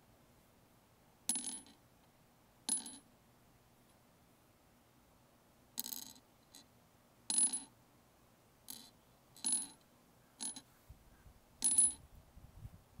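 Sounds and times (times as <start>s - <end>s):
stones clinking on wood: 8.7s - 9.8s.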